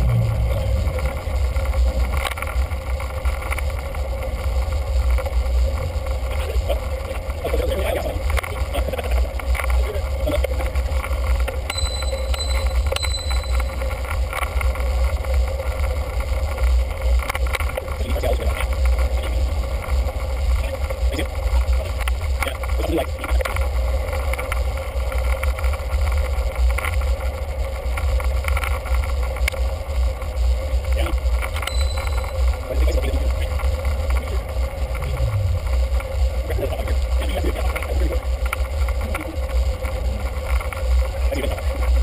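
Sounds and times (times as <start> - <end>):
short high beeps: 11.7 - 13.8, 31.7 - 32.4.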